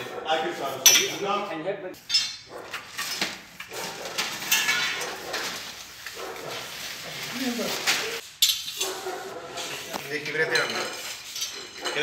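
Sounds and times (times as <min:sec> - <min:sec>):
men talking: 0:00.0 - 0:02.0, 0:09.5 - 0:11.1, 0:11.8 - 0:12.0
metal objects clinking: 0:02.0 - 0:05.8, 0:08.4 - 0:09.0, 0:10.1 - 0:12.0.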